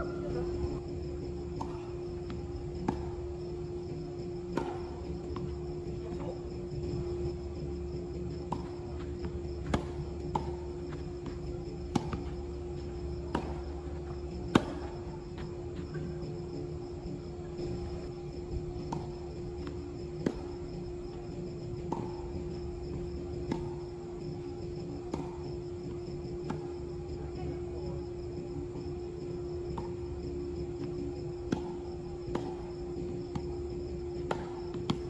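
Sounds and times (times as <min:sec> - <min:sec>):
tennis ball bouncing on court: 0:00.0 - 0:27.5, 0:29.6 - 0:35.0
insects chirping: 0:00.0 - 0:35.0
steady hum: 0:00.0 - 0:35.0
tennis rackets striking ball: 0:03.9 - 0:05.7, 0:08.4 - 0:15.2, 0:21.8 - 0:23.9, 0:24.9 - 0:26.7, 0:30.8 - 0:33.5, 0:34.2 - 0:35.0.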